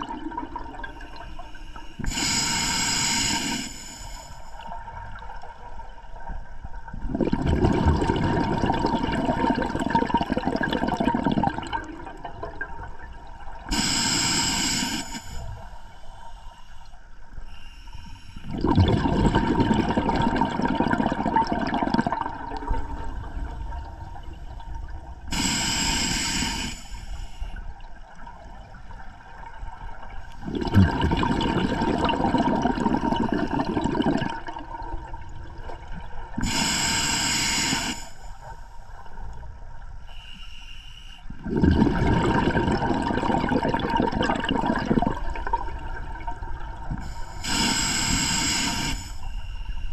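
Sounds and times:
exhaled bubbles rushing: 0.0 - 1.2, 6.8 - 13.7, 18.5 - 25.3, 28.2 - 36.5, 41.4 - 47.1
high hiss of inhalation: 1.0 - 4.6, 13.7 - 16.8, 25.3 - 27.6, 36.4 - 38.9, 40.1 - 41.2, 47.0 - 49.9.

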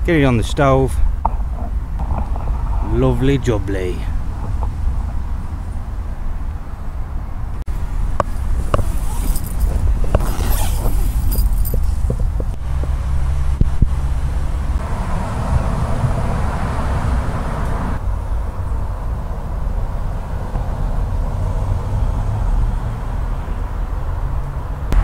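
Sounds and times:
low rumble of road traffic: 0.0 - 25.0
tent zip and fabric rustling: 8.6 - 12.0.

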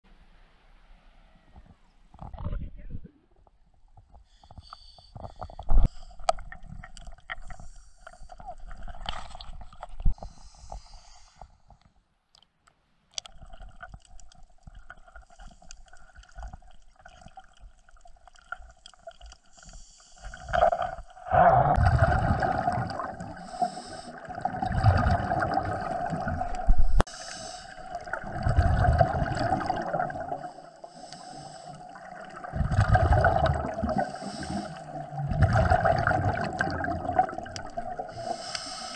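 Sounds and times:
underwater bubbling bursts: 13.2 - 38.9.

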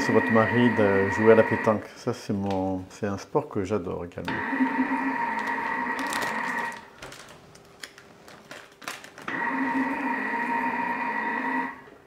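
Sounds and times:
kitchen machine motor kneading dough: 0.0 - 1.8, 4.3 - 6.9, 9.3 - 12.0.

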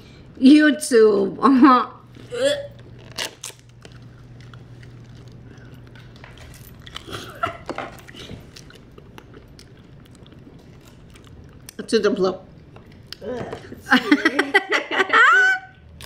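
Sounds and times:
biting and chewing candy paper: 2.8 - 11.8.

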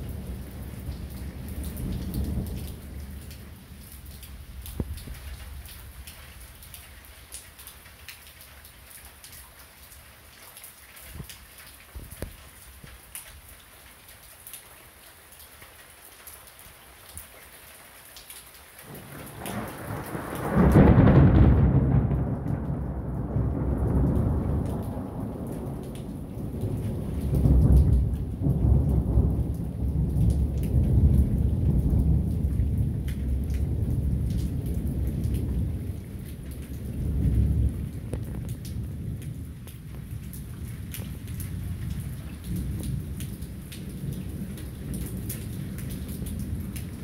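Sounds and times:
thunder rumbling: 0.0 - 3.9, 18.9 - 47.0
steady rain: 0.0 - 47.0.

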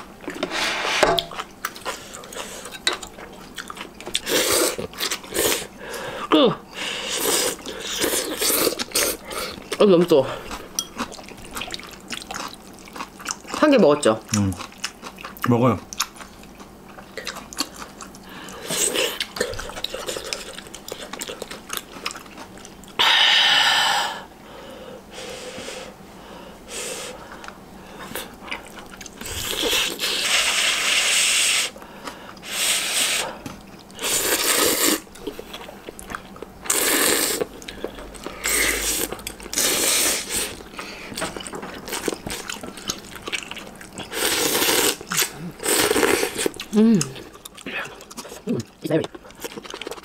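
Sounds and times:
person slurping noodles: 29.2 - 31.8, 34.0 - 35.1, 36.7 - 37.5, 38.4 - 40.6, 44.1 - 47.2.

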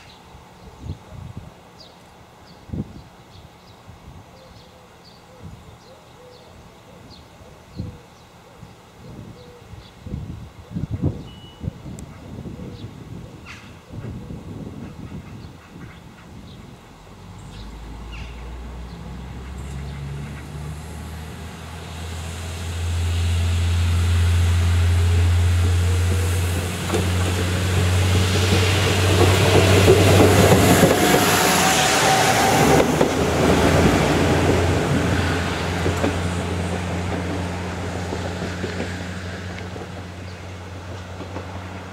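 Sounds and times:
diesel railbus passing: 11.3 - 41.9
rising engine whine: 16.8 - 41.9.

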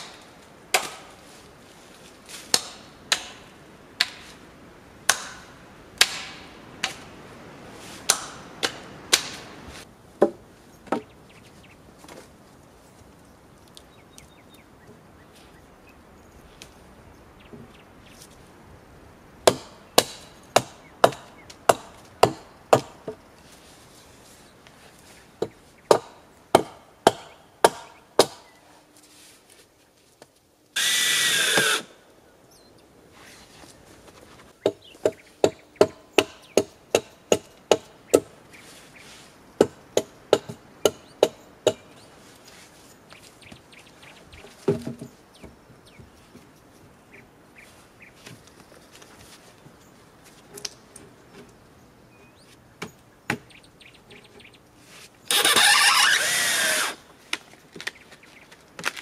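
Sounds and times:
hammer blows on logs: 8.0 - 9.6
handheld power tool running: 55.3 - 57.0.

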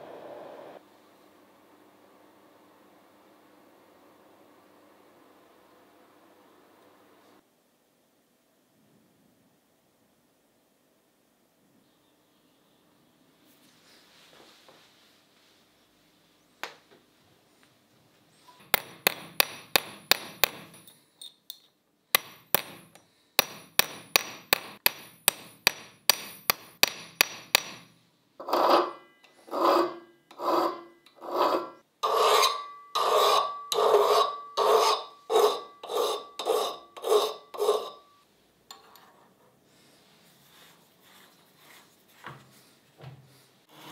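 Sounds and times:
file scraping across metal blade: 28.4 - 38.0.

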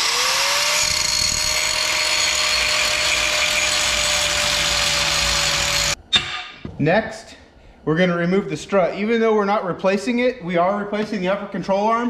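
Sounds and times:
angle grinder cutting steel: 0.0 - 6.0.

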